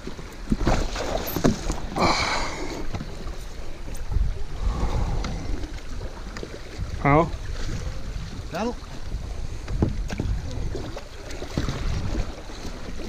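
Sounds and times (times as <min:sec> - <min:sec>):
water splashing around paddleboard: 0:00.0 - 0:13.0
wind rumbling on microphone: 0:00.0 - 0:13.0.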